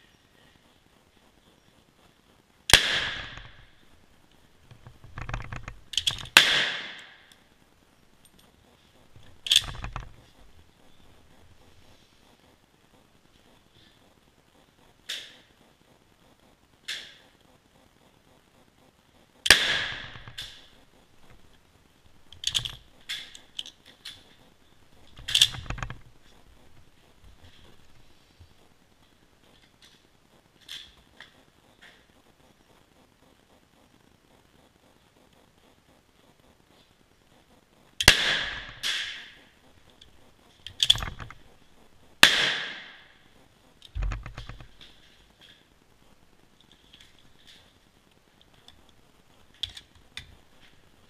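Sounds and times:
rifle shot with echo: 2.7 - 3.5, 6.4 - 7.2, 19.5 - 20.6, 38.0 - 39.4, 42.2 - 43.1.

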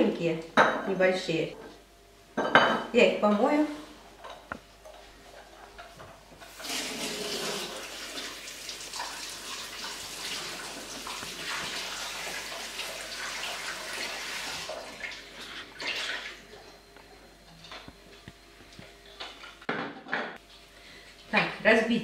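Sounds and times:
tap water running into sink: 6.5 - 15.2.

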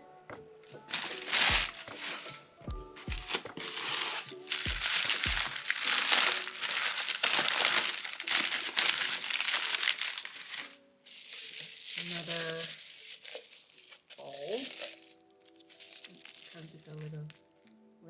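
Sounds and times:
background music with deep bass: 0.0 - 6.6
packing paper crinkling: 0.6 - 2.4, 3.0 - 17.7.

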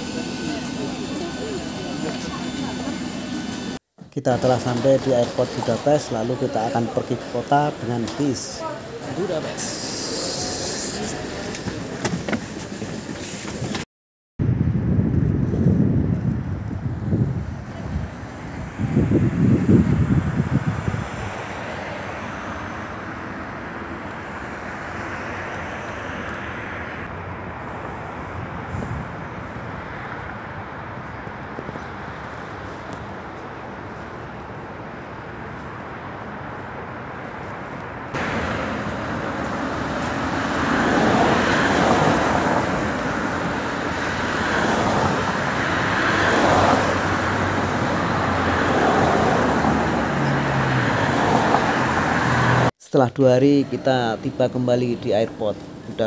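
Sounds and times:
city traffic hiss: 0.0 - 13.8, 17.4 - 56.0
gusting wind: 14.4 - 52.7.

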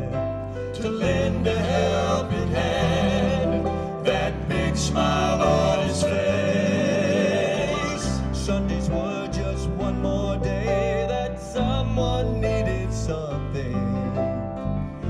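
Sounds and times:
man singing lead with vibrato: 0.0 - 14.7
steady bass line: 0.0 - 15.0
gospel band accompaniment: 0.7 - 10.2.

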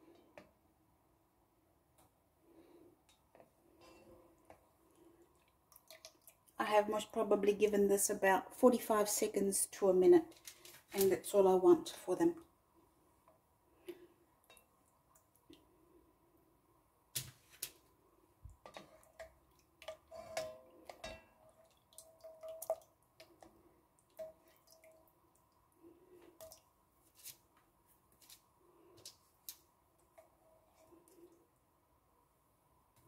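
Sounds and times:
spoon tapping and scraping pot: 18.6 - 23.5
syrup dripping: 20.8 - 26.7.

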